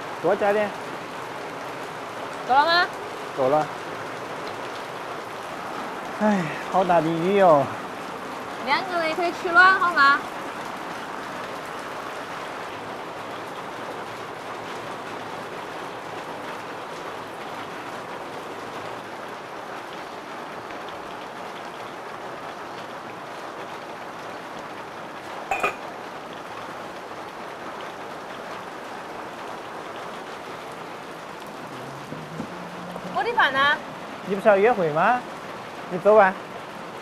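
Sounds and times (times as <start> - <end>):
heavy rain falling: 0.0 - 37.0
sharp clink: 25.5 - 25.9.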